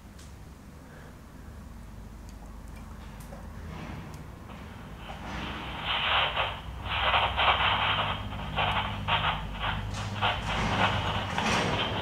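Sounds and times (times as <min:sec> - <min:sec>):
walkie-talkie radio static hiss: 0:05.8 - 0:12.0.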